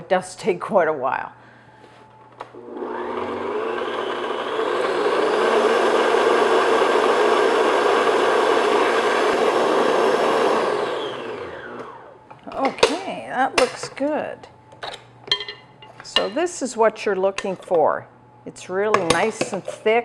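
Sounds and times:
stand mixer motor whirring: 2.6 - 12.2.

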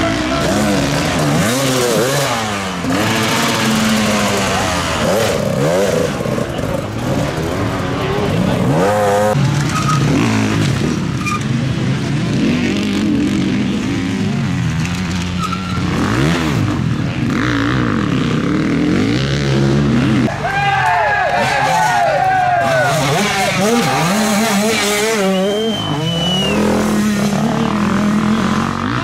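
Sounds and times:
dirt bike engines revving: 0.0 - 29.0.

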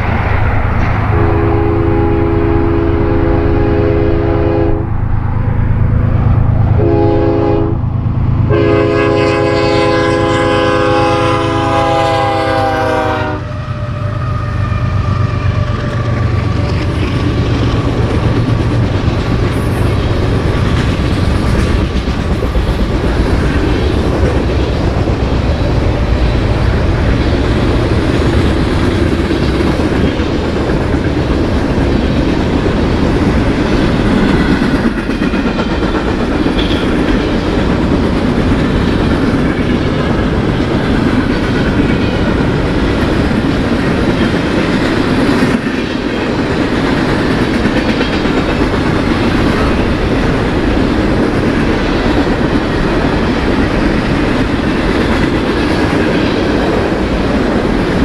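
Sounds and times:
train rumbling past: 0.0 - 58.0
train air horn blasts: 1.1 - 5.0, 6.8 - 7.9, 8.5 - 16.0
wheels clacking over rail joints: 14.9 - 58.0.

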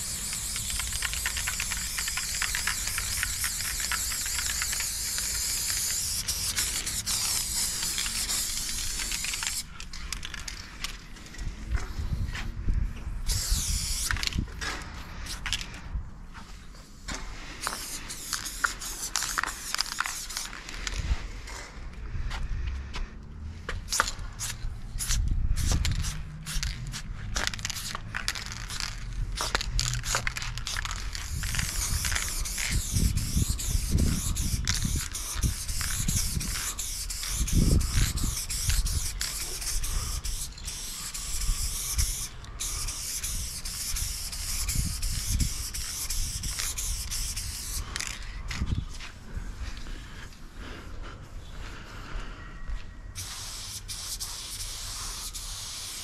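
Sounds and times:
spray-paint can hissing: 0.0 - 9.7, 13.2 - 14.3, 17.6 - 20.5, 23.8 - 48.2, 53.2 - 56.0.

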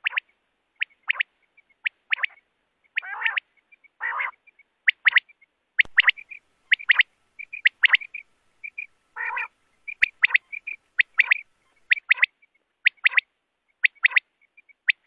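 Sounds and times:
soft short chirps: 5.8 - 12.2
quail calling: 5.8 - 12.3.

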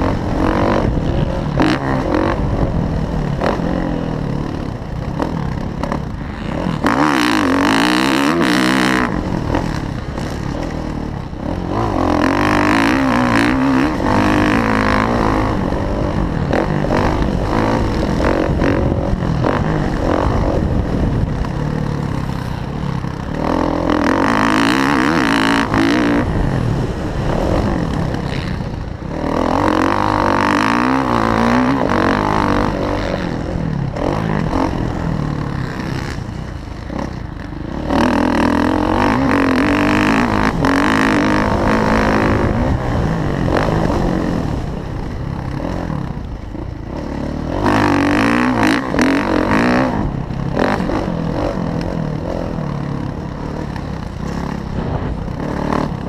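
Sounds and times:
motocross engine revving: 0.0 - 56.0.

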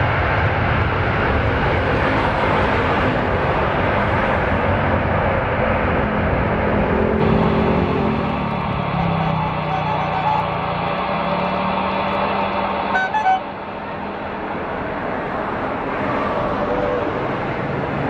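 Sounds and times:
jet engine rumble and hiss: 0.0 - 7.3
short horn-like toot: 9.2 - 10.5, 13.0 - 13.4.

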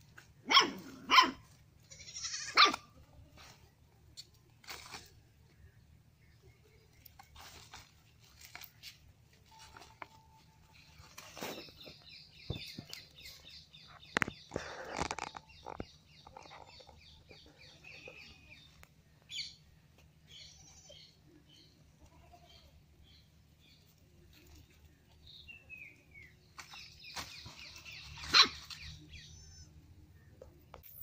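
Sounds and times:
birds chirping: 10.8 - 23.9, 25.2 - 31.0.

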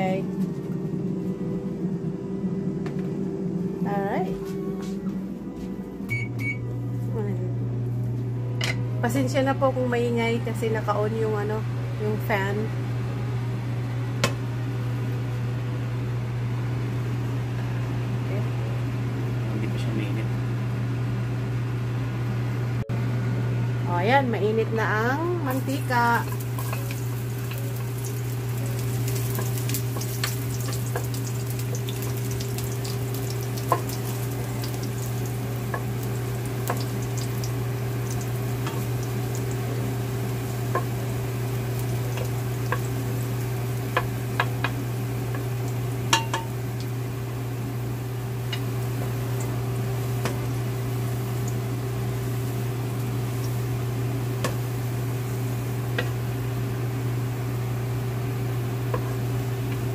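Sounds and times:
kitchen fan hum: 0.0 - 59.9
garlic sizzling in oil: 25.4 - 59.9.

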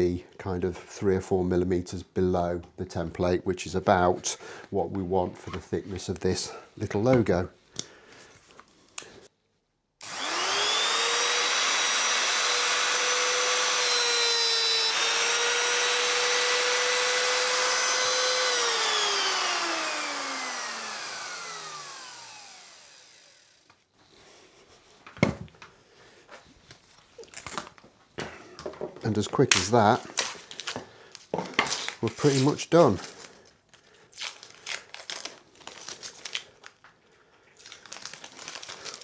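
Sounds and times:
router high whine: 10.0 - 23.8.

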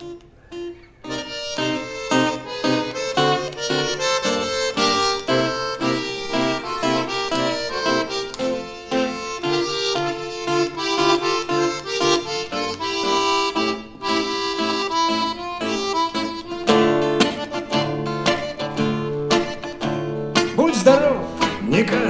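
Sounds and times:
accordion melody: 0.0 - 22.0
acoustic guitar chords: 0.0 - 22.0
man singing: 20.5 - 22.0.

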